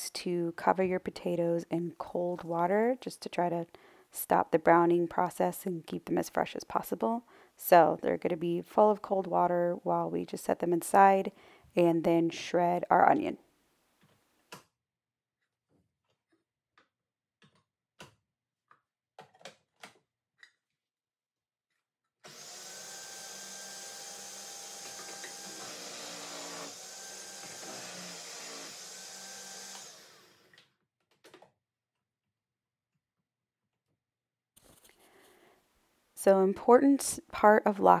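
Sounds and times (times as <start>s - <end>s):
food processor motor running: 22.3s - 30.5s.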